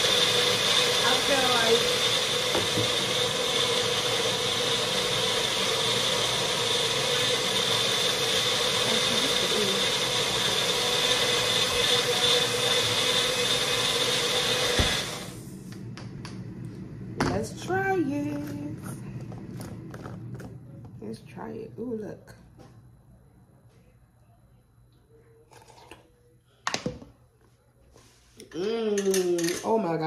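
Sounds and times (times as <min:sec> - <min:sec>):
blender motor running: 0:00.0 - 0:15.8.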